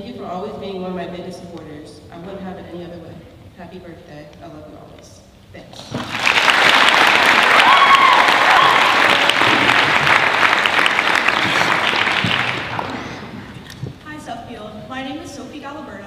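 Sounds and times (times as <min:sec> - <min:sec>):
audience applauding: 0:05.9 - 0:13.7.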